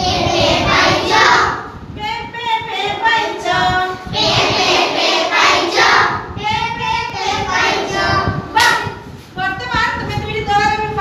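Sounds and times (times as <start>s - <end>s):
children singing in unison: 0.0s - 1.6s.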